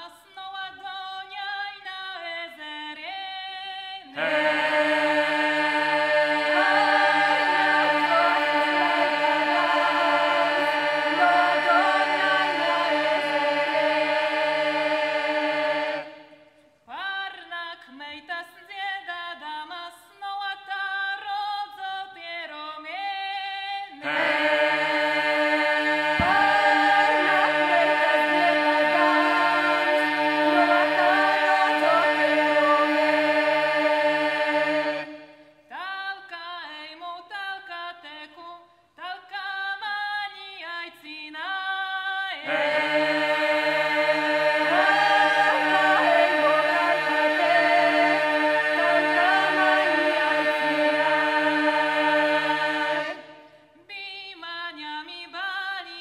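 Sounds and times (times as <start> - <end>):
a cappella group singing: 0.0 - 56.0.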